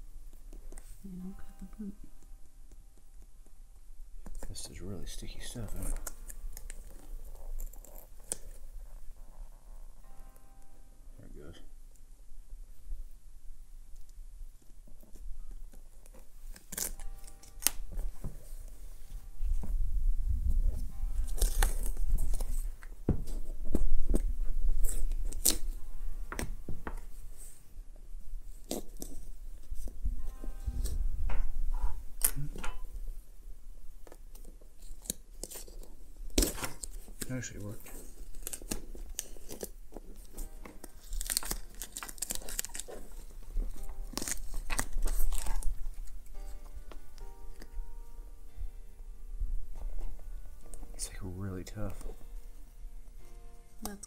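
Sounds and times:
faint music: 0.0s - 54.0s
masking tape peeling: 5.4s - 10.4s, 14.6s - 19.3s, 20.7s - 27.6s, 28.5s - 32.8s, 34.0s - 47.8s.

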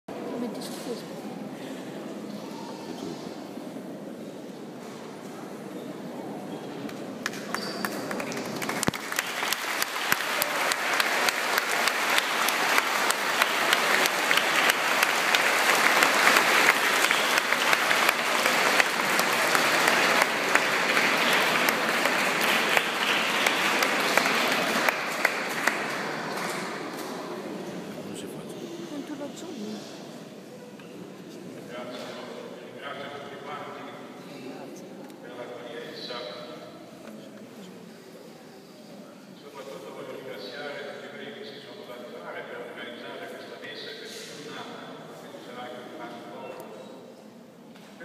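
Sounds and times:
crowd clapping: 7.2s - 27.0s.

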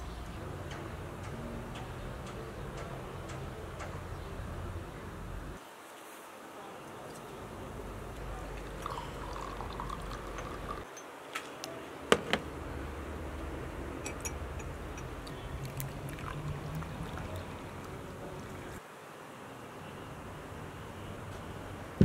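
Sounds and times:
tea trickling into cups: 6.8s - 11.8s, 14.0s - 18.8s.

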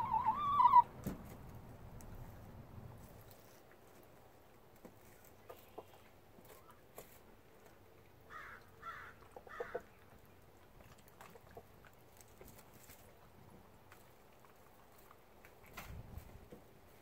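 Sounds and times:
hens calling softly: 0.0s - 0.9s, 8.1s - 10.5s.

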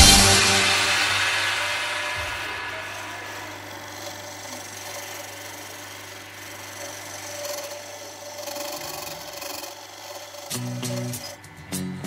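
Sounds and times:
lathe motor hum: 0.0s - 12.0s
chisel scraping wood: 2.8s - 11.5s.

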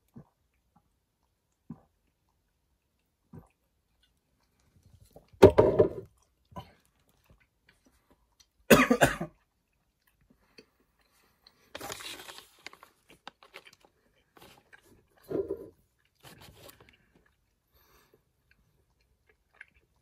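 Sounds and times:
person coughing hard: 8.7s - 9.4s
plastic snack bag crinkling: 11.7s - 15.0s.

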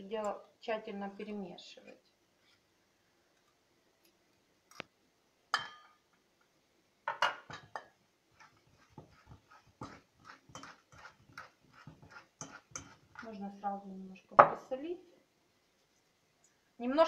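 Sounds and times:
metal spoon clinking on steel bowl: 5.5s - 6.0s, 9.8s - 13.3s
spoon stirring and scraping: 7.2s - 13.8s.

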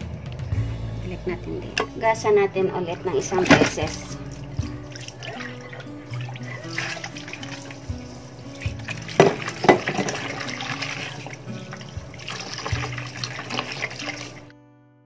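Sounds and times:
soft background music: 0.0s - 15.0s
water sloshing and splashing: 3.0s - 14.5s.

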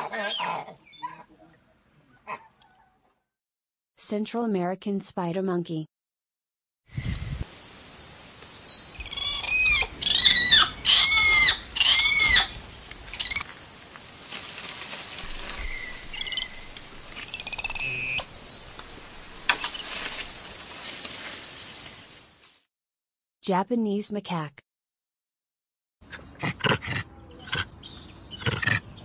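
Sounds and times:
spider monkey calling: 9.0s - 13.4s, 15.2s - 20.3s.

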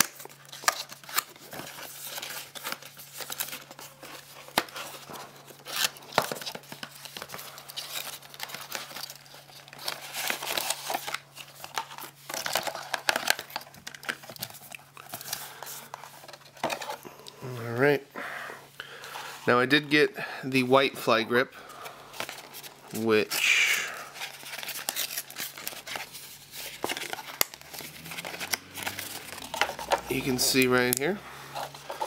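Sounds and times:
cardboard box rustling: 24.1s - 30.6s.

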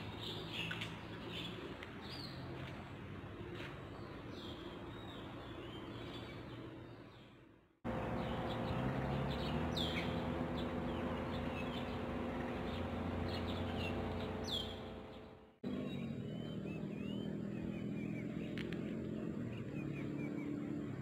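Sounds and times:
birds chirping: 0.0s - 21.0s
steady low hum: 7.9s - 21.0s.

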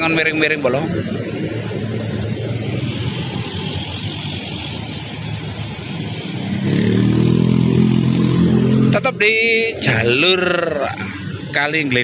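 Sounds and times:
diesel truck engines: 0.0s - 12.0s
tyres on road: 0.0s - 12.0s.

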